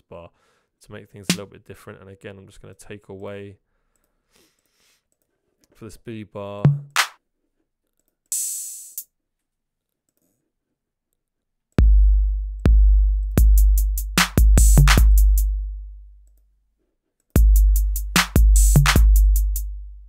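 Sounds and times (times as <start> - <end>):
snare-clap hits: 6.9 - 7.2, 14.2 - 15.1, 18.2 - 19.1
deep kick drum booms: 17.4 - 19.4.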